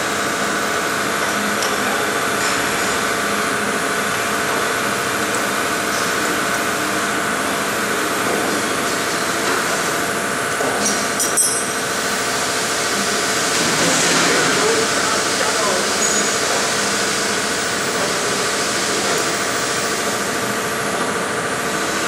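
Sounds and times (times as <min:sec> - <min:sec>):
workshop machinery humming: 0:00.0 - 0:22.0
wrench clinking on metal table: 0:11.2 - 0:11.8.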